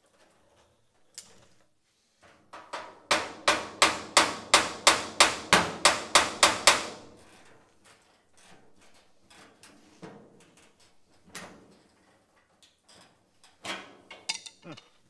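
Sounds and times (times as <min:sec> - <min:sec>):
hammer striking steel bar: 0:14.3 - 0:14.7.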